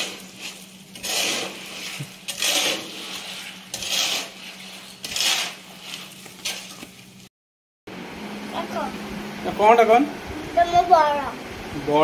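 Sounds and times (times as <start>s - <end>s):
rasping scrape strokes: 0.0s - 6.8s.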